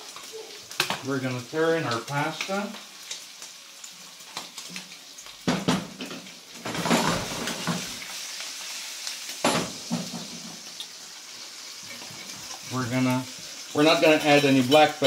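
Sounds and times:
meat sizzling in a frying pan: 0.0 - 15.0
metal knocks of pan and utensils: 5.5 - 7.9, 9.4 - 10.4.

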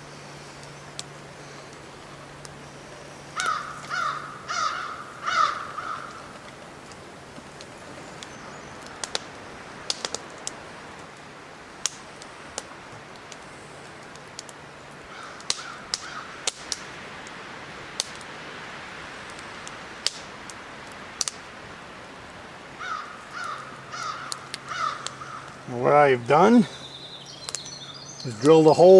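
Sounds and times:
wood fire crackling and popping: 0.0 - 28.9
crow cawing: 3.4 - 6.4, 15.1 - 16.4, 22.8 - 25.6.

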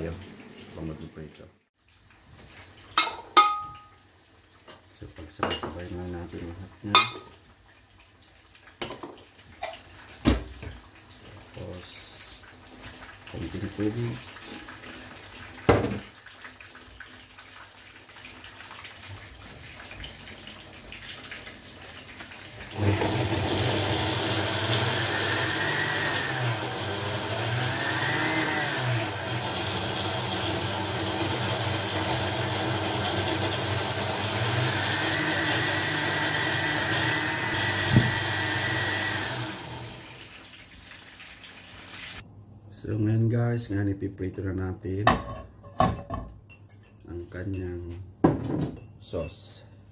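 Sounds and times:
blender motor whining: 22.7 - 40.2.

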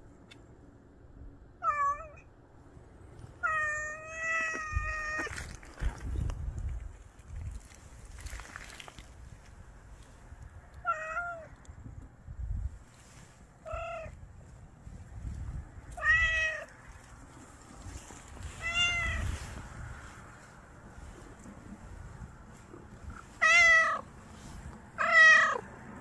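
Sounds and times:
cat meowing: 1.6 - 2.2, 10.8 - 11.5, 13.6 - 14.2, 16.0 - 16.7, 18.6 - 19.3, 23.4 - 24.0, 25.0 - 25.6.

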